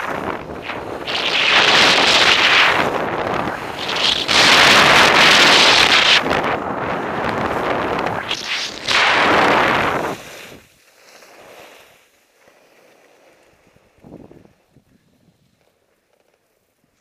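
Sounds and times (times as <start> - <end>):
wind buffeting microphone: 0.0 - 10.7, 14.0 - 15.4
skis scraping over snow: 0.0 - 17.0.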